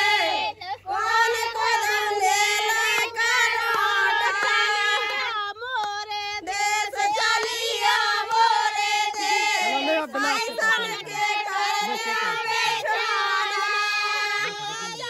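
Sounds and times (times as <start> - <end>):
women singing folk song: 0.0 - 15.0.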